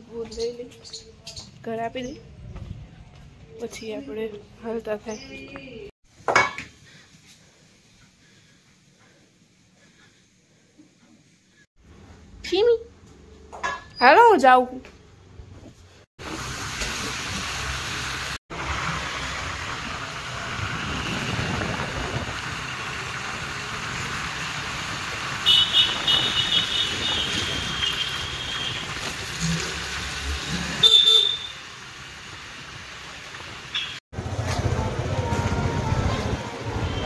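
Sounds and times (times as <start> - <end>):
road vehicle moving: 15.2 - 37.0
high-pitched horn honking: 30.8 - 31.6, 34.8 - 37.0.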